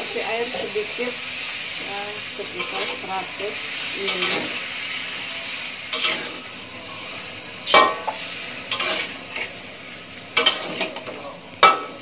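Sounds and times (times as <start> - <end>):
food sizzling: 0.0 - 12.0
spatula scraping a wok: 1.4 - 12.0
spatula clanking on pan: 7.7 - 9.5, 10.4 - 12.0.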